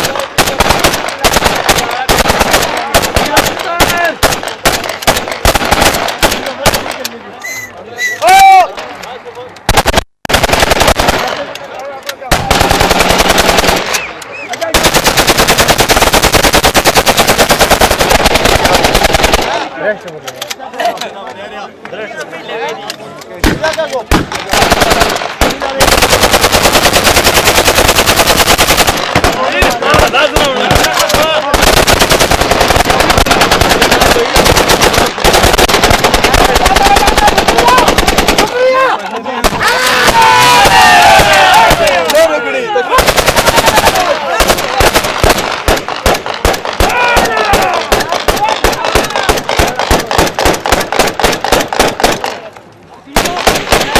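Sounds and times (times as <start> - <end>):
automatic gunfire bursts: 0.0 - 7.0, 9.7 - 11.5, 12.3 - 19.7, 23.4 - 38.6, 42.9 - 52.4, 53.2 - 53.9.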